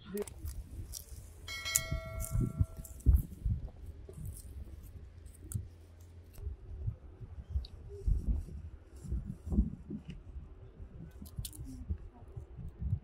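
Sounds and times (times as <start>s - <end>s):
metal object struck ringing: 1.5s - 3.0s.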